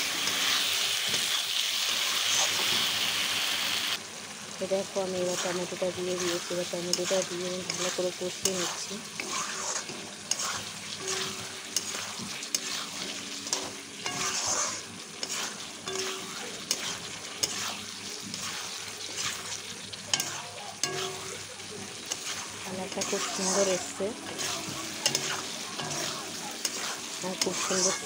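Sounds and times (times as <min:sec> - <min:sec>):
sauce sizzling in oil: 0:00.0 - 0:28.0
spatula scraping a pan: 0:05.2 - 0:28.0.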